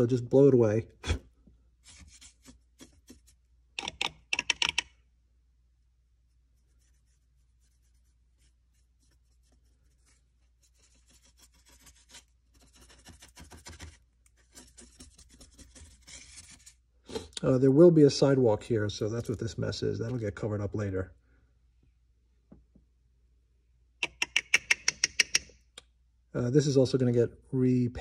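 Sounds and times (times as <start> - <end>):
paintbrush scrubbing hard surface: 1.8 - 3.5, 6.2 - 16.8
puffs of breath blowing: 17.0 - 17.4.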